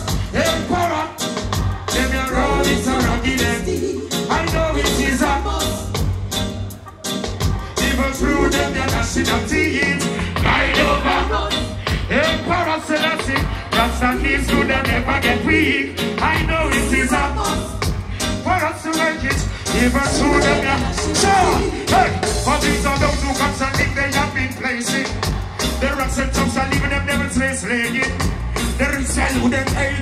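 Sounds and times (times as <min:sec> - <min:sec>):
reggae band playing: 0:00.0 - 0:30.0
person singing: 0:18.6 - 0:26.5.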